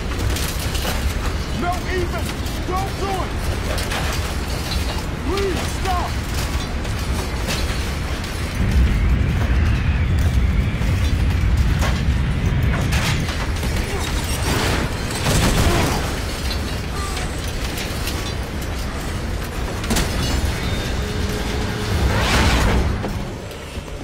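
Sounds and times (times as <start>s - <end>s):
whoosh: 21.2s - 23.4s.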